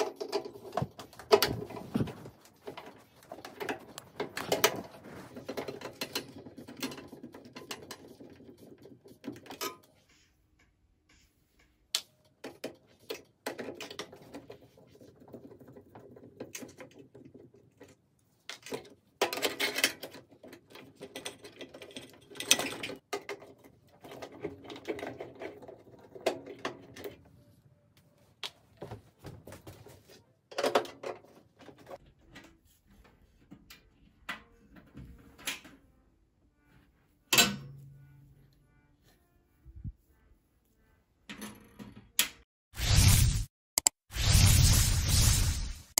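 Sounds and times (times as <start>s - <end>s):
tools clicking and rattling on metal: 0.0s - 10.0s, 12.3s - 27.1s.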